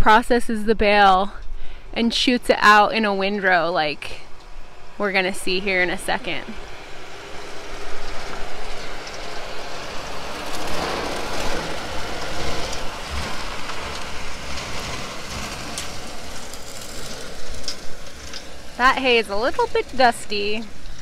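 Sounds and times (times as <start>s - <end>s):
tractor engine rumble: 0.0s - 21.0s
bale processor shredding hay: 1.7s - 21.0s.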